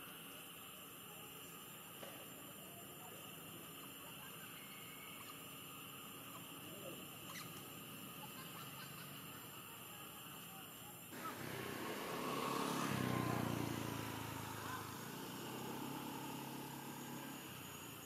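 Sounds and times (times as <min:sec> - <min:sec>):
vehicle engine passing by: 0:11.2 - 0:18.0.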